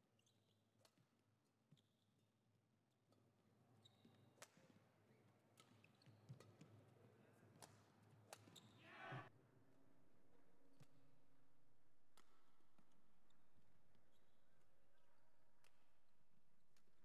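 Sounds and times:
shoe squeaks on court: 3.8 - 4.7, 5.6 - 6.7, 8.3 - 8.9
voices: 8.8 - 9.3.

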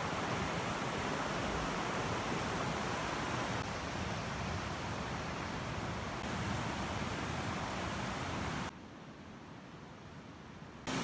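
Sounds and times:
river water rushing: 0.0 - 8.7.

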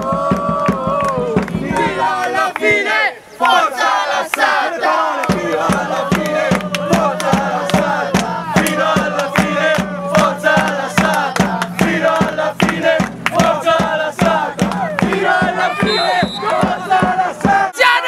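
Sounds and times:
football supporters chanting: 0.0 - 18.0.

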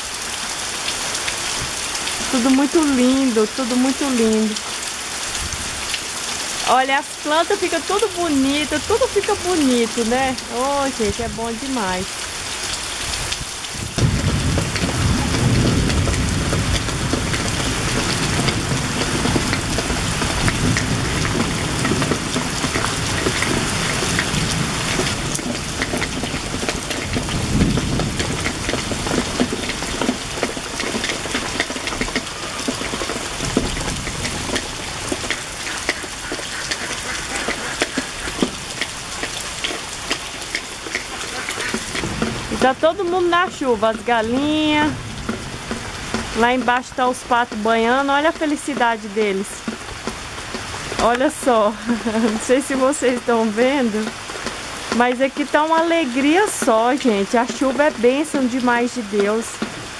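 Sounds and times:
heavy rain pouring: 0.0 - 59.9
low rumble: 13.8 - 19.9.

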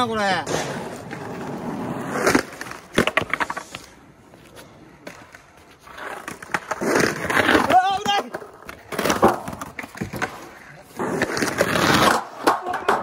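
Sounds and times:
skateboard wheels rolling on concrete: 0.0 - 13.0
skateboard clacking on ground: 0.4 - 4.0, 4.6 - 13.0.

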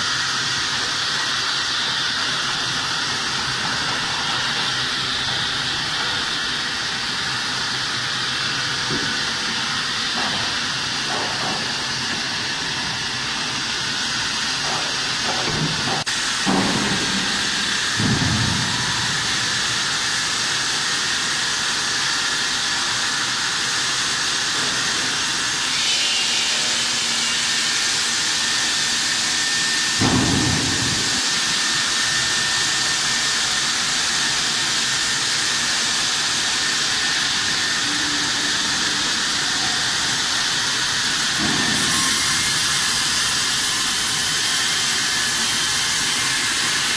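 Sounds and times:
saw cutting stone under water: 25.7 - 46.9.

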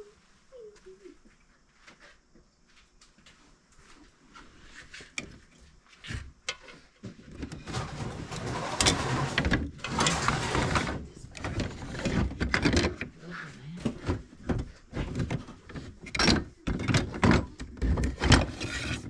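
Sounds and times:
small objects clattering in a box: 7.3 - 13.1.

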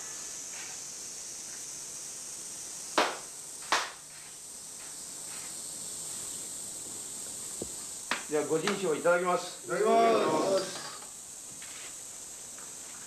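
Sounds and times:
tape hiss: 0.0 - 13.0
hand claps: 3.0 - 4.0.

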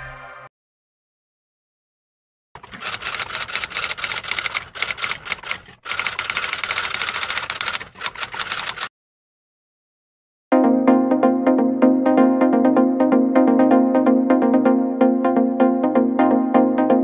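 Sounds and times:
typewriter keystrokes clacking: 2.6 - 8.9.

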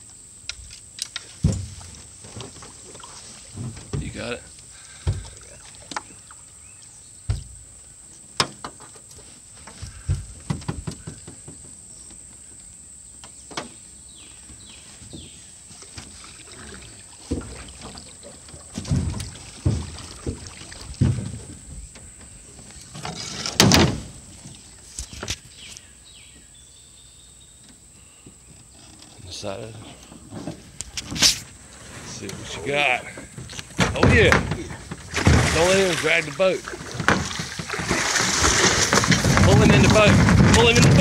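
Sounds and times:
loud clatter in metal boat: 18.7 - 21.9, 32.4 - 41.0.

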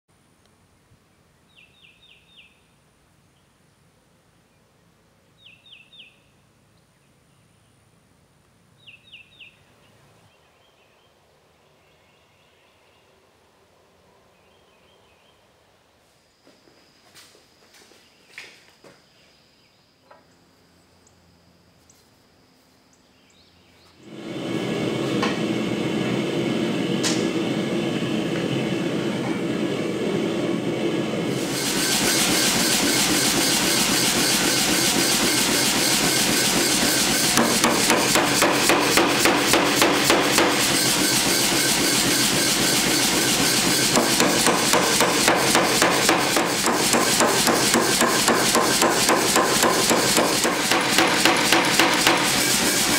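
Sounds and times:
machine running noise: 24.0 - 52.9
power hammer blows on steel: 24.1 - 52.9.

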